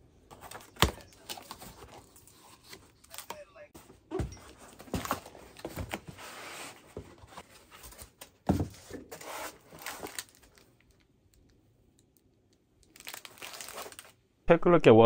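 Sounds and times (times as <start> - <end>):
cardboard and foam scraping: 4.8 - 10.2.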